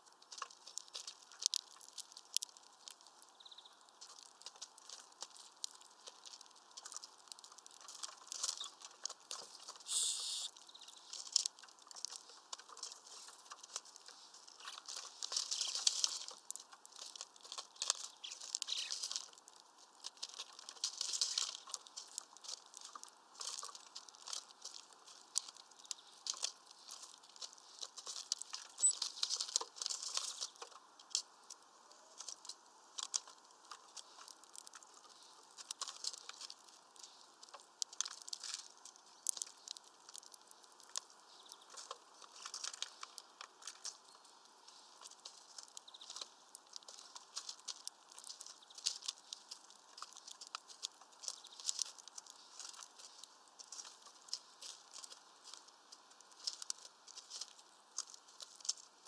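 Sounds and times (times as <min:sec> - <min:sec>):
birds pecking at feeder: 0:00.0 - 0:59.0.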